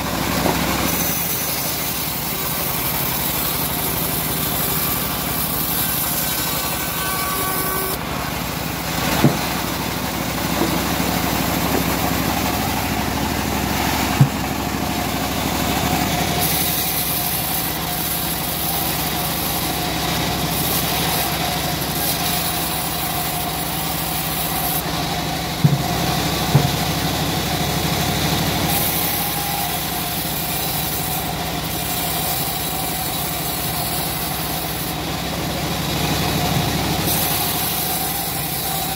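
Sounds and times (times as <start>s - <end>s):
bandsaw cutting log: 0.0s - 38.9s
sharp knocks: 9.2s - 9.5s, 14.1s - 14.7s, 25.6s - 26.9s.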